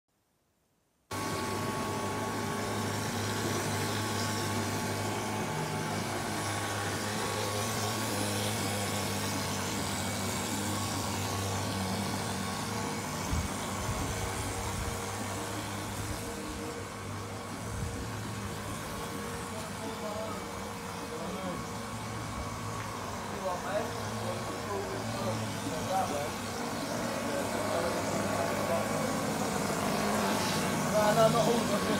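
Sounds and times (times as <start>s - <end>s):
spraying machine humming: 1.1s - 31.9s.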